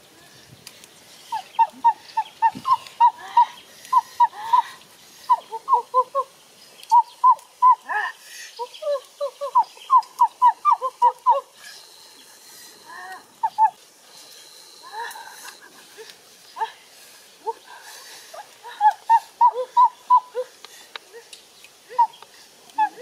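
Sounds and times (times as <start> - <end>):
bird chirping: 0.3 - 7.8, 8.5 - 15.7.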